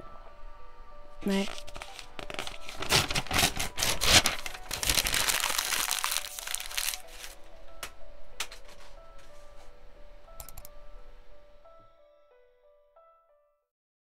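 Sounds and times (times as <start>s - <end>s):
soft background music: 0.0s - 13.7s
paper being crumpled: 1.2s - 7.4s.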